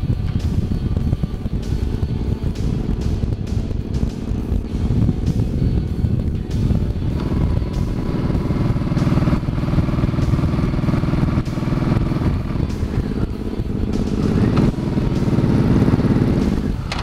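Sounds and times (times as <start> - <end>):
motorcycle engine cruising: 0.0 - 17.0.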